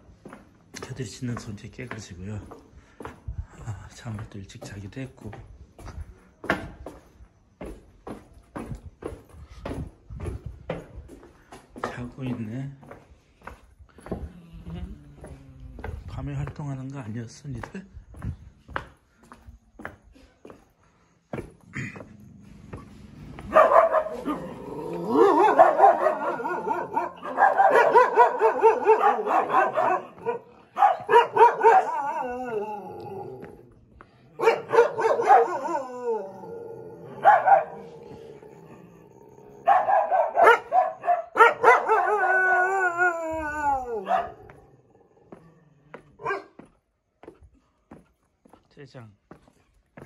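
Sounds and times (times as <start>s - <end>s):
dogs barking and howling: 23.2s - 46.6s.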